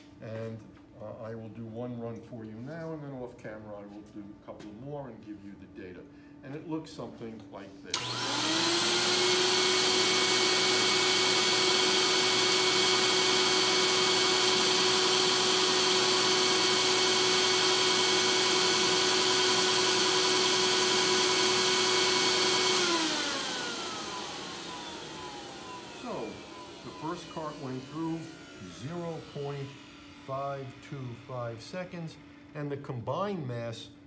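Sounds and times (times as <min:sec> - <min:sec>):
blower whining: 0:07.9 - 0:32.8.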